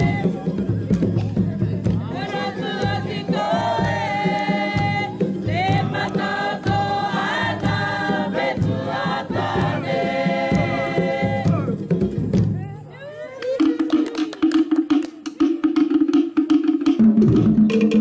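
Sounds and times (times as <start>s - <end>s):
choir singing: 0.0s - 0.6s, 2.0s - 11.9s.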